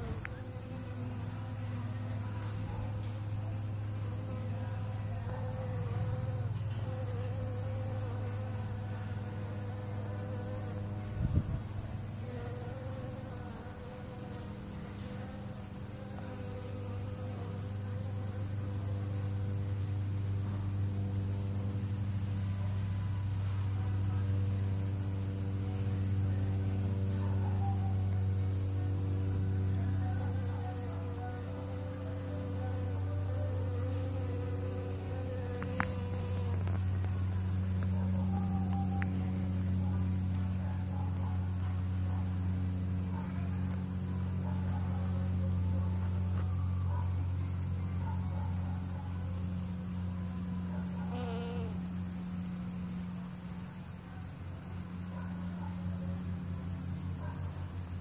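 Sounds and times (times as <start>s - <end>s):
bees buzzing: 0.0s - 11.1s, 11.9s - 24.7s, 29.8s - 39.2s, 51.1s - 51.8s
bee buzzing close by: 0.0s - 40.1s, 49.6s - 53.4s.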